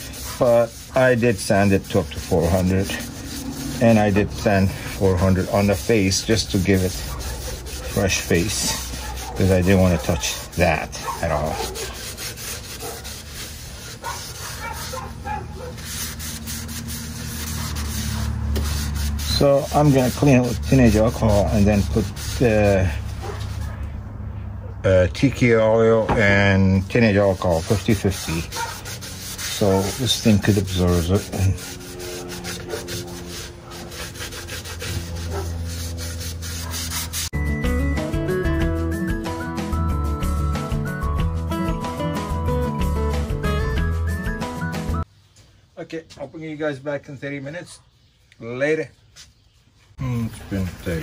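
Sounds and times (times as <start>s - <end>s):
gloved hand rubbing sanded wood: 0.0s - 23.8s, 26.3s - 37.4s
background music: 37.4s - 45.0s.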